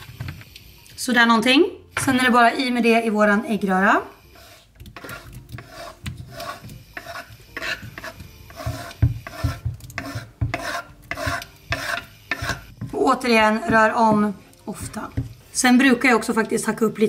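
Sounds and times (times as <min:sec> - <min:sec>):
wooden spatula scraping cutting board: 0:04.3 - 0:16.9.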